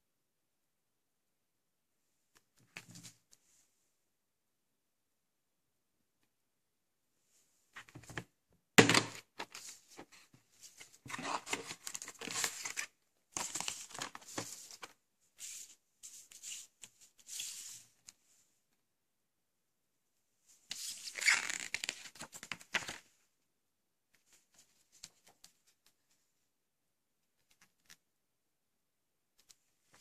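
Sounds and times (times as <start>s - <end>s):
paper leaflets rustling: 9.4s - 17.8s.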